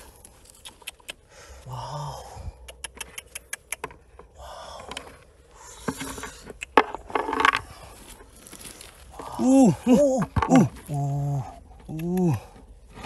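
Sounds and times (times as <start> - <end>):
stones clicking and clinking: 5.9 - 7.6.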